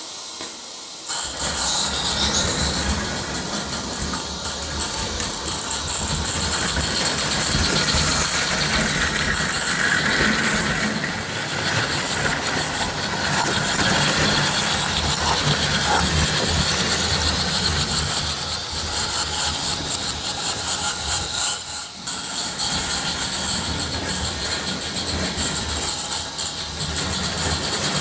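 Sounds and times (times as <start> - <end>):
steam hiss: 0.0 - 28.0
fast exhaust beats: 1.1 - 20.6
wheels rattling over rails: 1.1 - 28.0.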